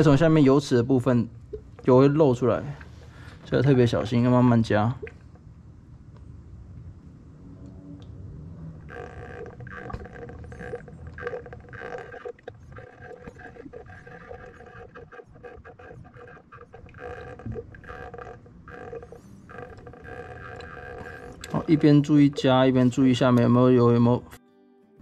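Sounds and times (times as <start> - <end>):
fluid glugging from bottle: 4.9 - 5.4, 8.8 - 23.1.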